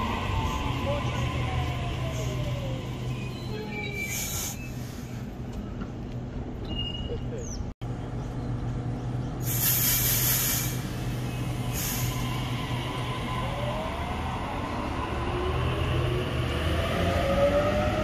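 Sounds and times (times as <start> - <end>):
air brakes hissing: 4.0 - 5.3, 9.4 - 12.4.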